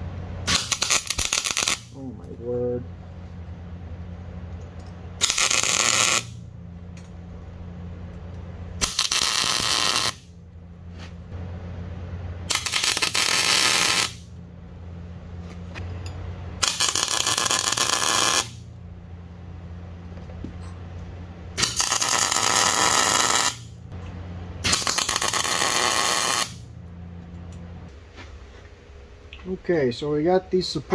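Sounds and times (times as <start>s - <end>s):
steady low hum: 0.0s - 30.9s
welder arc hissing: 0.4s - 2.0s, 5.2s - 6.4s, 8.8s - 10.3s, 12.5s - 14.3s, 16.6s - 18.7s, 21.6s - 23.7s, 24.6s - 26.7s.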